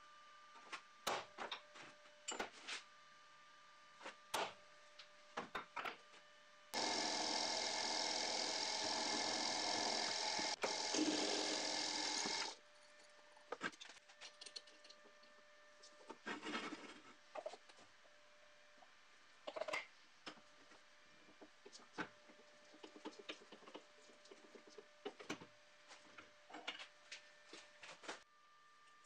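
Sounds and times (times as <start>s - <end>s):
drill press drilling metal: 6.8s - 12.6s.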